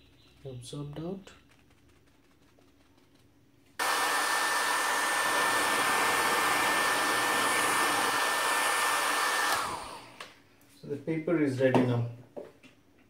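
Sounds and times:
hair dryer blowing: 3.8 - 10.4.

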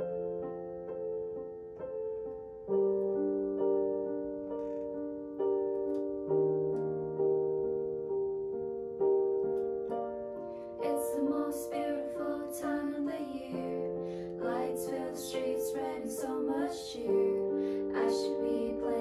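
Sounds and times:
piano chords: 0.0 - 19.0
young women singing together: 10.8 - 19.0.

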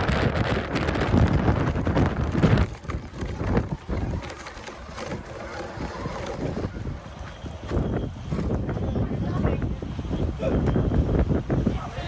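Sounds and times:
wind buffeting microphone: 0.0 - 12.0
toy truck rolling over gravel: 0.1 - 8.6.

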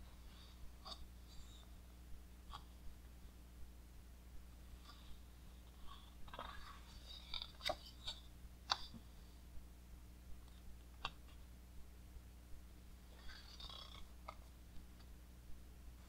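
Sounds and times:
book page turning: 6.3 - 8.8.

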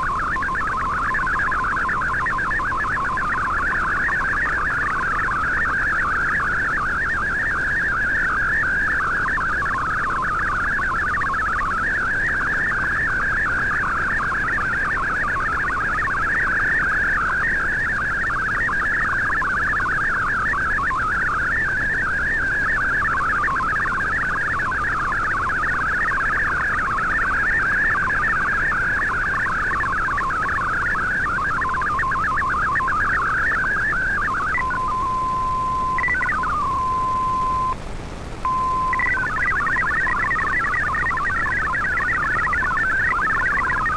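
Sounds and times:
warbling digital radio tones: 0.0 - 37.8, 38.4 - 43.9
radio band hiss: 34.6 - 40.9.

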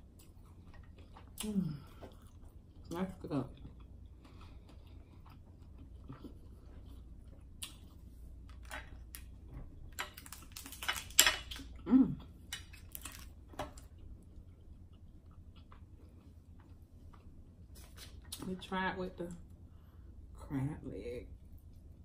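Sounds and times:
crab shells cracking: 9.9 - 11.8, 12.4 - 13.9.

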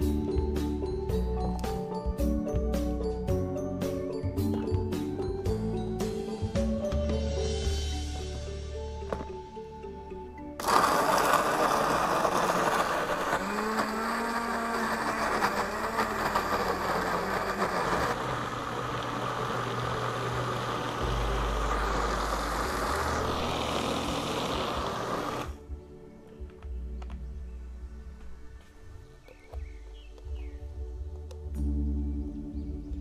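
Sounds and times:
blender motor grinding: 10.6 - 25.6.

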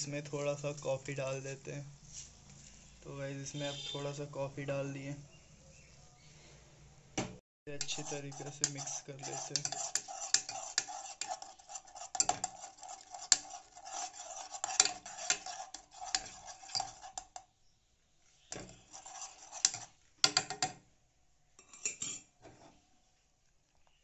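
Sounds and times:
metal spoon scraping saucepan: 7.7 - 17.5, 18.4 - 20.8, 21.6 - 22.8.

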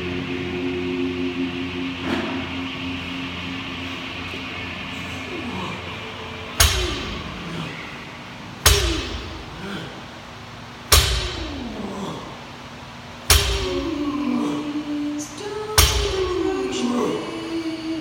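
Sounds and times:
barbell thudding on floor: 8.7 - 9.5.

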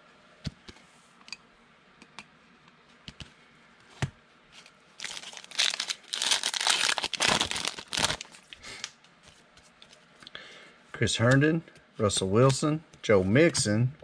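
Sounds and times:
foil wrapper tearing and crinkling: 5.0 - 8.9.

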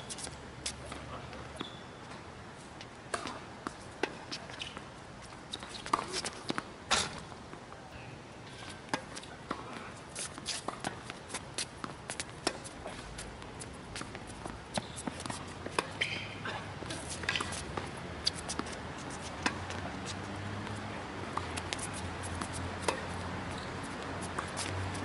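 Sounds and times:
racket striking tennis ball: 14.0 - 19.9, 21.3 - 23.7.

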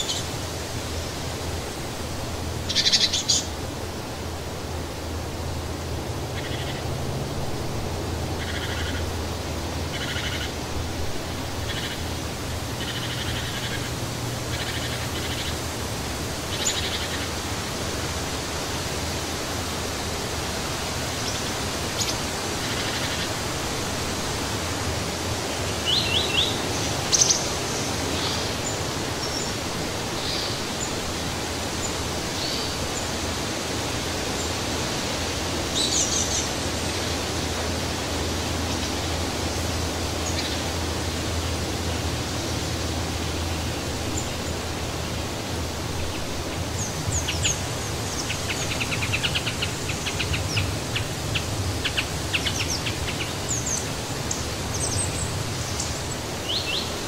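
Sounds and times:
wind rushing through trees: 0.0 - 57.0
songbirds chirping: 19.2 - 57.0.

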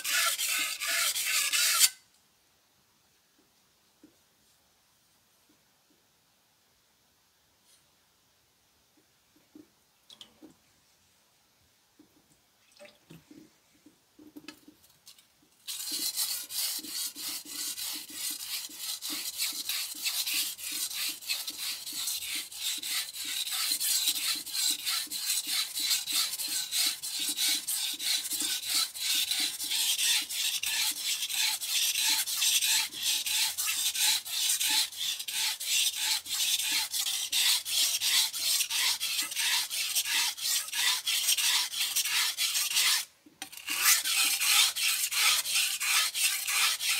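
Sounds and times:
knife scraping on whetstone: 0.0 - 2.0, 15.7 - 46.9.

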